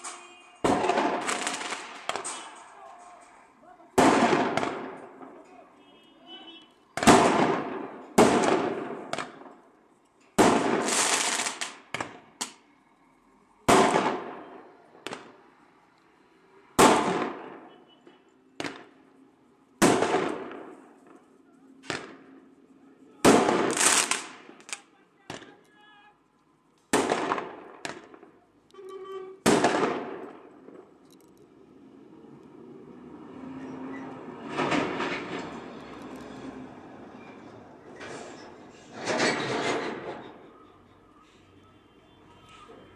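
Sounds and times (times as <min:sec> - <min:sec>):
firecrackers banging with echo: 0:00.0 - 0:05.8, 0:06.9 - 0:12.6, 0:13.6 - 0:15.5, 0:16.8 - 0:19.1, 0:19.8 - 0:22.5, 0:23.2 - 0:25.6, 0:26.8 - 0:28.5, 0:29.3 - 0:31.0, 0:34.4 - 0:36.0, 0:37.9 - 0:40.5.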